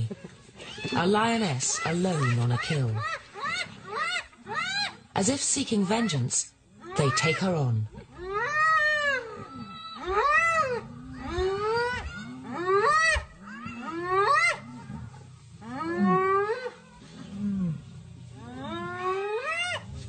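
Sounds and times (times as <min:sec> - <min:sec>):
hyenas yelping: 0:00.6 - 0:05.1, 0:06.8 - 0:17.2, 0:18.4 - 0:20.0
low growling: 0:07.9 - 0:20.0.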